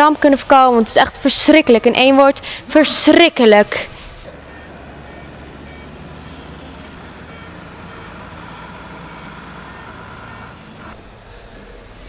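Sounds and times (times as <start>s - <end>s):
engine rumble: 4.2s - 11.1s.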